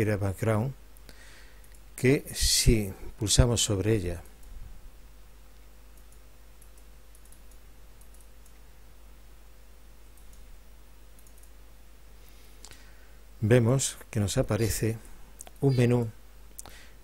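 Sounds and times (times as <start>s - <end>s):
low electrical hum: 0.0s - 17.0s
computer mouse clicks: 5.6s - 8.7s, 10.1s - 10.5s, 11.1s - 11.6s.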